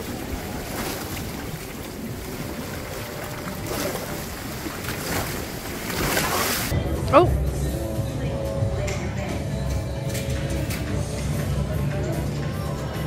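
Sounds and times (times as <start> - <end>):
sea water washing around hull: 0.0 - 6.8
wind buffeting microphone: 0.0 - 6.8.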